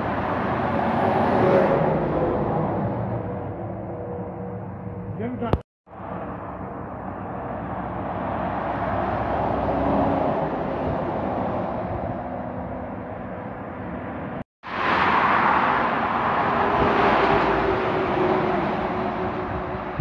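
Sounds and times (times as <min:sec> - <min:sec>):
vehicle passing close: 0:05.5 - 0:20.0.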